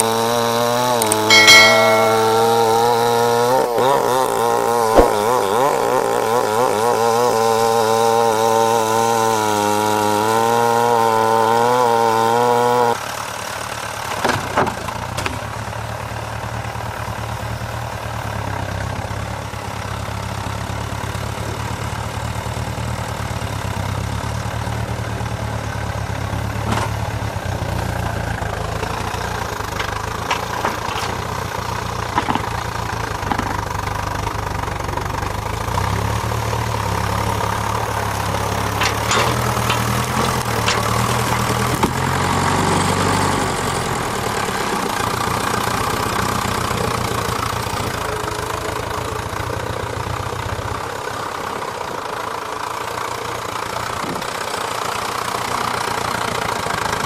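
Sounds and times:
tractor engine under load: 0.0 - 57.0
sharp knocks: 5.0 - 5.7.

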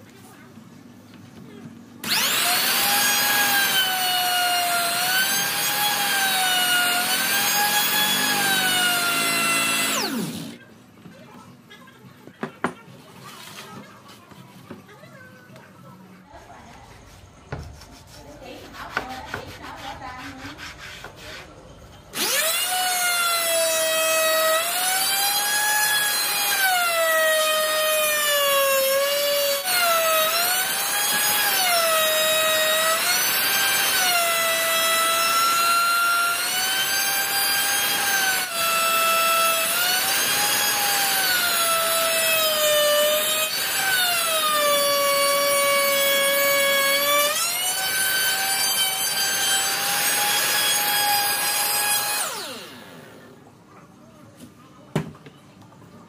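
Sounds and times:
power tool cutting wood: 2.0 - 10.6, 22.1 - 53.2.

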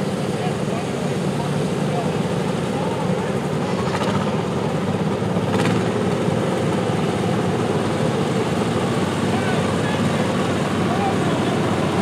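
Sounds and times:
small tractor engines running: 0.0 - 12.0.

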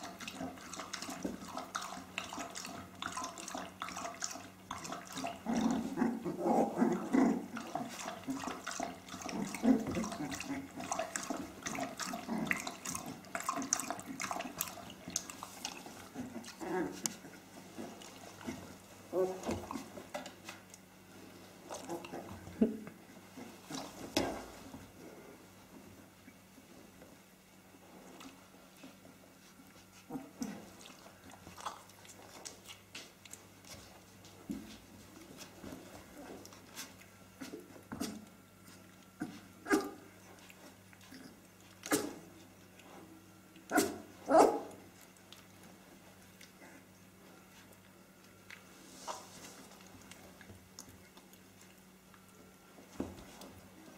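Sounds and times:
puppies growling and grunting: 0.0 - 20.7, 21.4 - 25.4, 27.9 - 33.8, 34.8 - 52.6
puppies scuffling: 0.0 - 53.9
puppies barking: 43.7 - 44.8.

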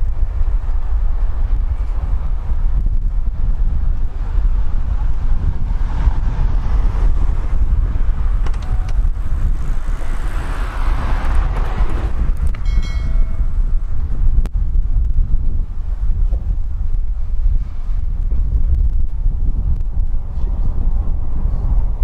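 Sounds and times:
street traffic: 0.0 - 22.0
wind rumbling on microphone: 0.0 - 22.0
car passing by: 5.4 - 12.5.

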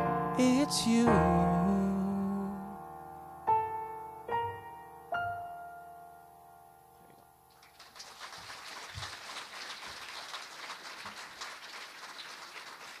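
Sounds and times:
piano chord: 0.0 - 7.5
audience applause: 7.5 - 13.0.

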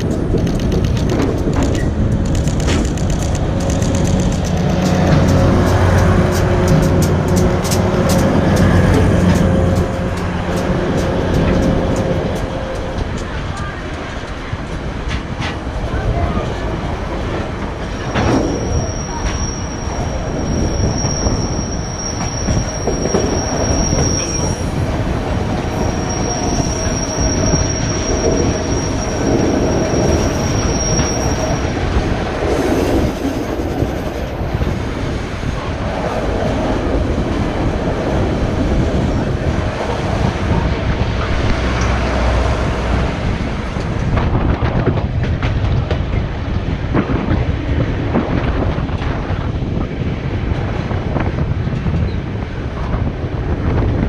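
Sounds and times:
train wheels clicking over rail joints: 0.0 - 15.9
high wheel squeal: 17.9 - 24.8, 25.7 - 31.8.

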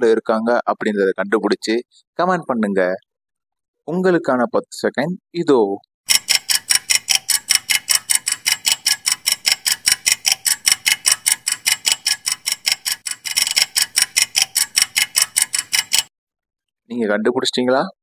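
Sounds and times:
clock ticking fast: 6.1 - 16.1.

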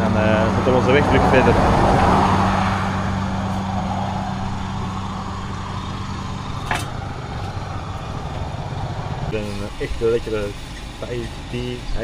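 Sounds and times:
engine idling: 2.4 - 12.0.

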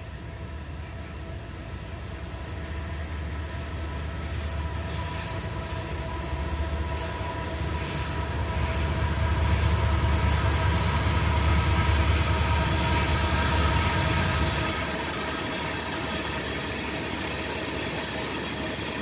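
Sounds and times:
diesel locomotive: 0.0 - 19.0.

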